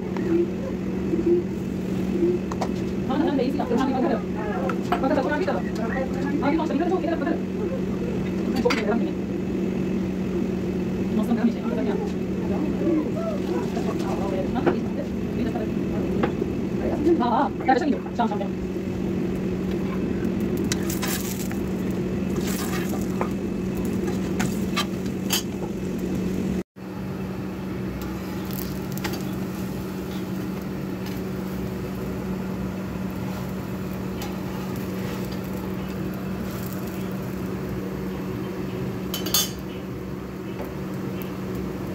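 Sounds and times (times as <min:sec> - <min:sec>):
steady low hum: 0:00.0 - 0:41.9
utensils and pots clinking: 0:22.4 - 0:25.7, 0:39.1 - 0:39.8.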